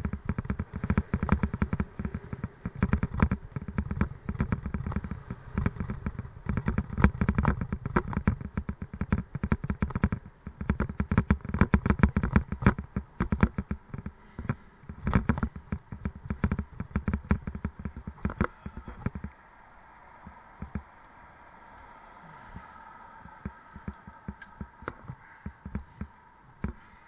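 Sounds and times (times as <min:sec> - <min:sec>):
bicycle rattling: 0:00.0 - 0:27.0
heavy low rumble: 0:10.2 - 0:27.0.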